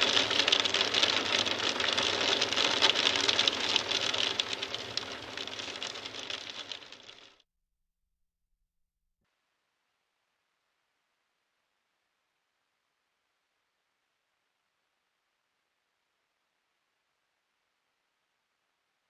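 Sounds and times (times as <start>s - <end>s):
heavy rain pattering: 0.0s - 7.4s.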